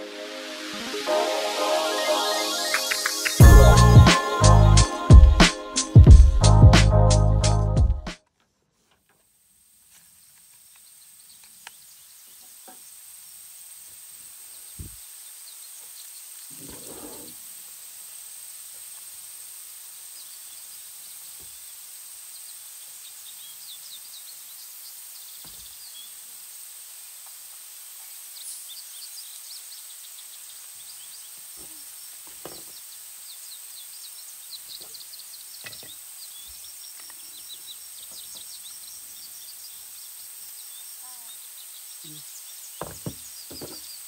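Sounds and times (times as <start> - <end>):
steady high hiss: 0.0 - 8.2, 8.8 - 44.0
small birds chirping: 2.1 - 4.9, 10.0 - 17.4, 20.0 - 44.0.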